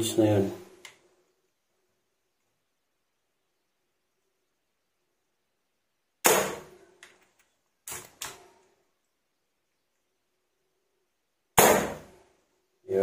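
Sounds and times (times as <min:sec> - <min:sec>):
air rifle discharge: 0:11.6 - 0:12.1.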